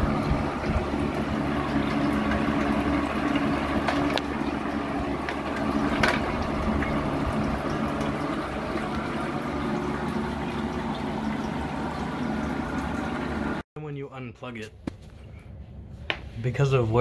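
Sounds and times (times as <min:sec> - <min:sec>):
fan motor humming: 0:00.0 - 0:13.6
water churning and splashing: 0:00.0 - 0:13.6.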